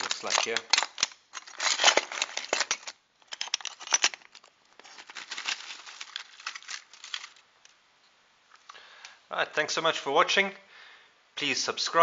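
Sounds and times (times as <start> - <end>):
glass sheets clicking and scraping: 0.0 - 7.8.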